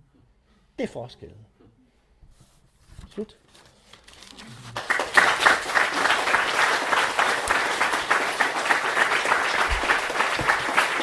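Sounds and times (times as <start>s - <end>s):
audience applauding: 4.8s - 11.0s.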